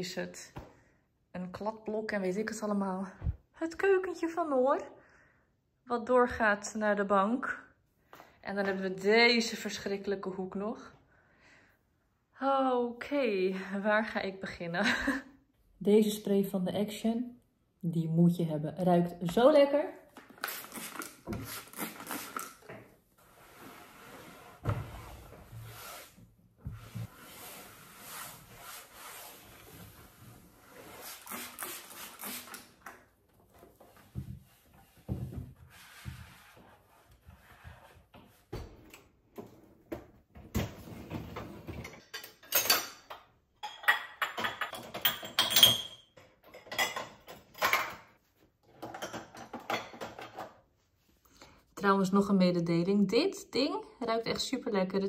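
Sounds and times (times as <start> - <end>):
cloth rubbing on table: 23.2 - 32.5, 34.3 - 38.4
crockery and cutlery clattering: 41.6 - 48.1.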